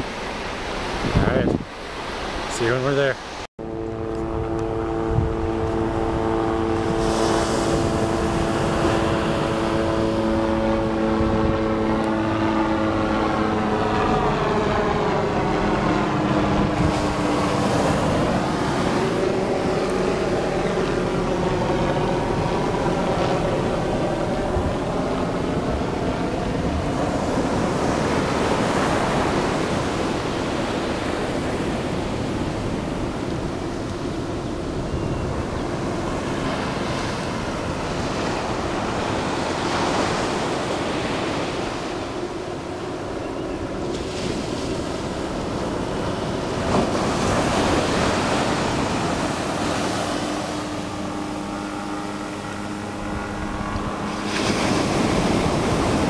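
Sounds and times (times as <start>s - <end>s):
surf breaking on beach: 0.0s - 3.5s, 4.7s - 12.7s, 15.2s - 34.7s, 35.3s - 42.5s, 43.8s - 51.8s, 52.4s - 56.0s
wind on microphone: 0.0s - 56.0s
steady motor hum: 3.6s - 56.0s.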